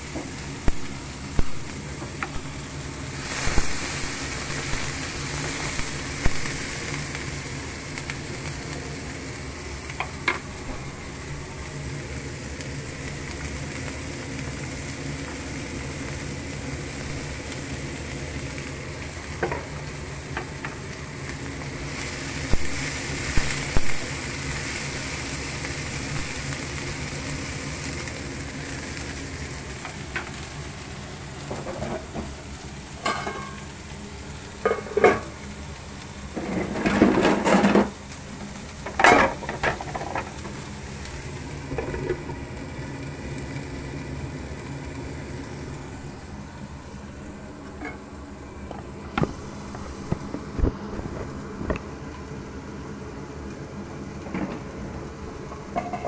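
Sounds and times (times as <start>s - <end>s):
vegetables sizzling in oil: 0.0s - 56.0s
spatula and lid clattering on pan: 33.0s - 33.6s.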